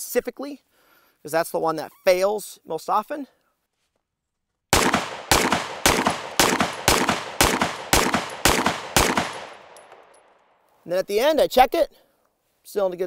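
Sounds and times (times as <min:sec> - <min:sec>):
pistol shots with echo: 0:04.7 - 0:10.4.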